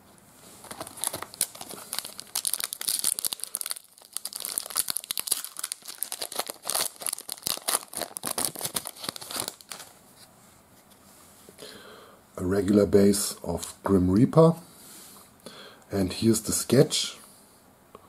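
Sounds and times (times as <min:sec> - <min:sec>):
foil wrapper crinkling and tearing: 0:00.6 - 0:09.9.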